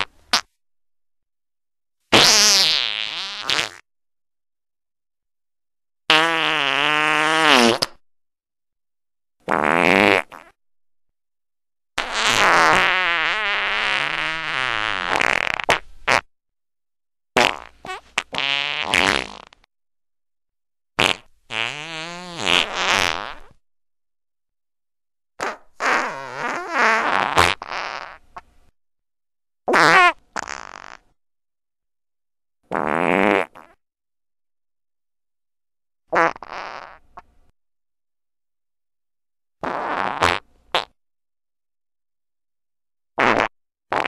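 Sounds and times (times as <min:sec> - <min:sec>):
farts: 0:00.0 - 0:00.5, 0:02.1 - 0:03.9, 0:06.1 - 0:08.0, 0:09.4 - 0:10.6, 0:12.0 - 0:16.3, 0:17.4 - 0:19.7, 0:21.0 - 0:23.6, 0:25.4 - 0:28.5, 0:29.7 - 0:31.2, 0:32.7 - 0:33.8, 0:36.1 - 0:37.3, 0:39.6 - 0:41.0, 0:43.2 - 0:44.0.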